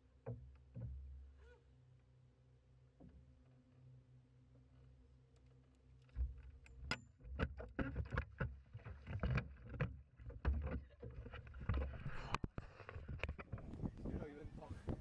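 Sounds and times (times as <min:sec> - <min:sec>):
knocks and thumps on boat hull: 0:07.3 - 0:11.9.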